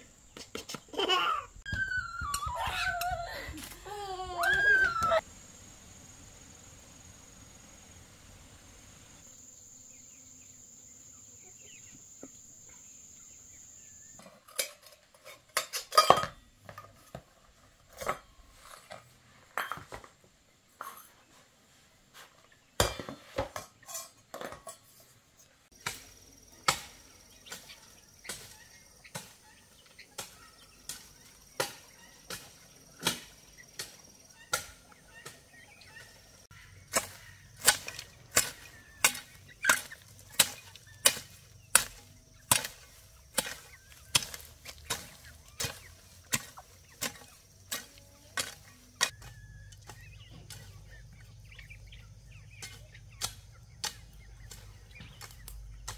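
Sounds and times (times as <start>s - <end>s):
blade chopping strikes: 36.9s - 47.8s.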